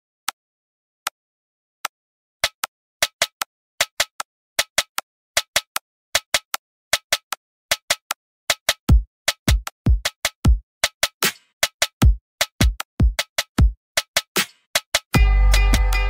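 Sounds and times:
deep drum beat: 0:08.9 - 0:10.6.

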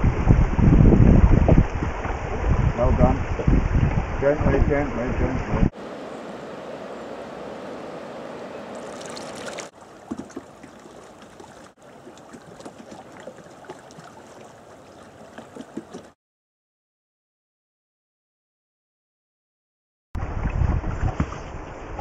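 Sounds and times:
river water rushing: 0:05.8 - 0:16.1
small water splashes: 0:08.7 - 0:16.2.

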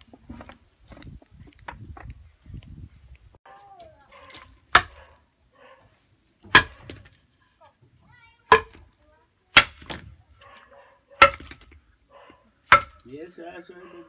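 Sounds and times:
sharp knocks: 0:12.7 - 0:13.1.

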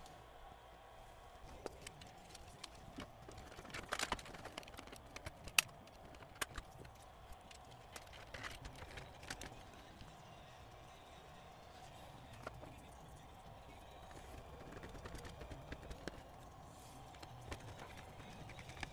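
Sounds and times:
plastic and metal parts clicking: 0:01.5 - 0:09.7, 0:14.1 - 0:16.2, 0:17.1 - 0:18.9.

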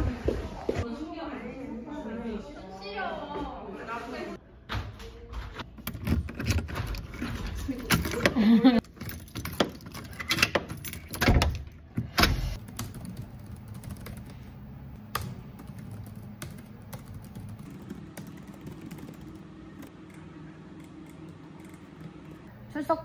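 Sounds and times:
key rattling in door lock: 0:05.7 - 0:11.7
laptop keyboard typing: 0:12.6 - 0:22.5.

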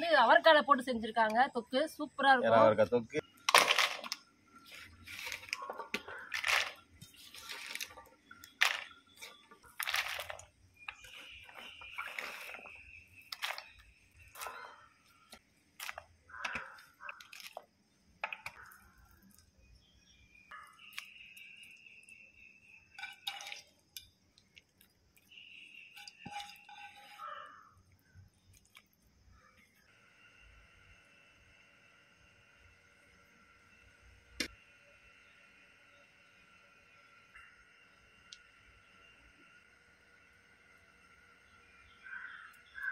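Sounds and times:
bean pieces dropped into a pan: 0:03.5 - 0:04.2.

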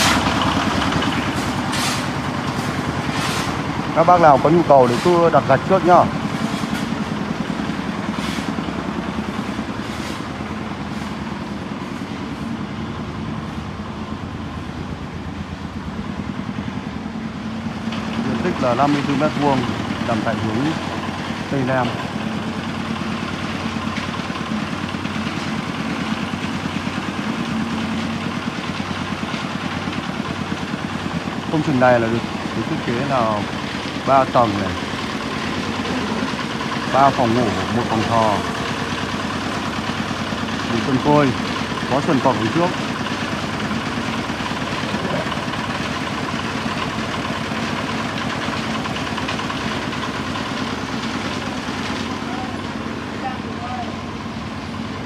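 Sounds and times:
engine idling: 0:00.0 - 0:55.0.

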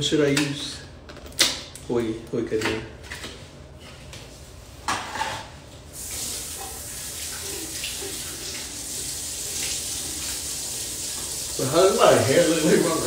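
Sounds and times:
water running into sink: 0:06.0 - 0:13.0.

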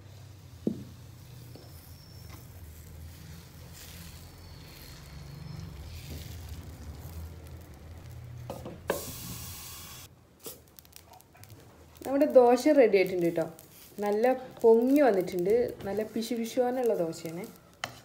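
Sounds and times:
batter sizzling on a pan: 0:00.0 - 0:18.0
brief loud hiss: 0:08.9 - 0:10.6.

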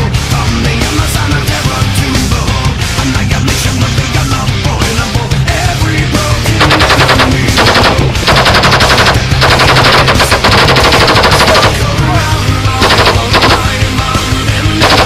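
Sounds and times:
machine gun automatic bursts: 0:06.6 - 0:11.9, 0:12.8 - 0:13.9, 0:14.8 - 0:15.0.

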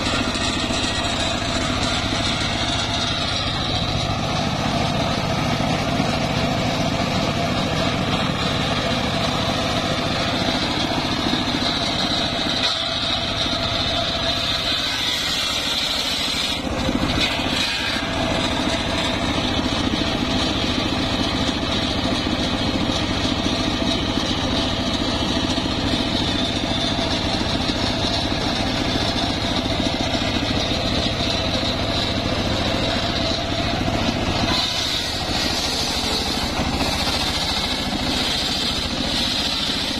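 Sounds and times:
engine hum: 0:00.0 - 0:39.9
saw blade high whine: 0:00.0 - 0:39.9.

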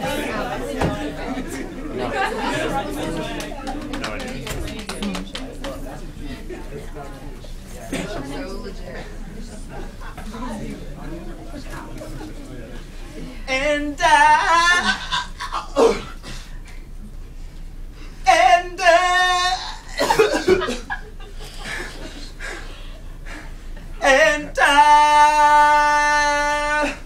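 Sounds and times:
listeners laughing: 0:00.0 - 0:13.3, 0:14.0 - 0:15.9, 0:19.1 - 0:24.9
young man singing unaccompanied: 0:13.5 - 0:15.5, 0:18.3 - 0:20.0, 0:24.0 - 0:27.0.

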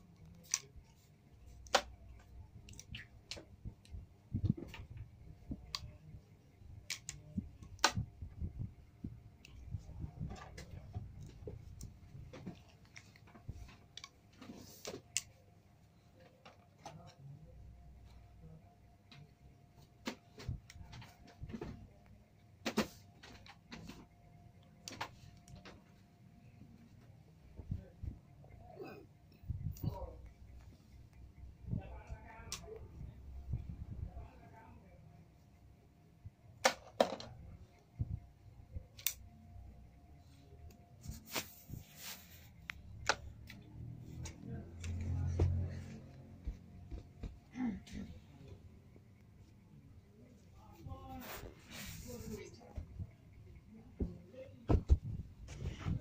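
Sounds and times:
clicks and knocks of a toy gun: 0:36.6 - 0:37.3.

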